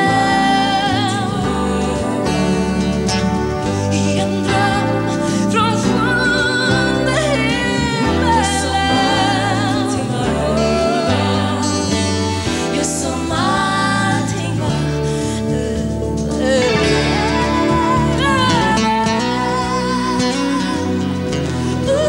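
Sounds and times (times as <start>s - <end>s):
acoustic guitar: 0.0s - 22.0s
backing singers: 0.0s - 22.0s
woman singing a ballad: 0.0s - 22.0s.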